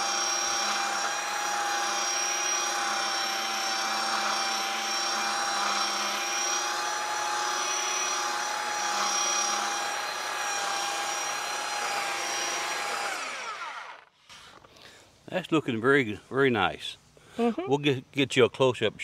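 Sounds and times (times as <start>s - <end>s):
power sander motor whine: 0.0s - 14.6s.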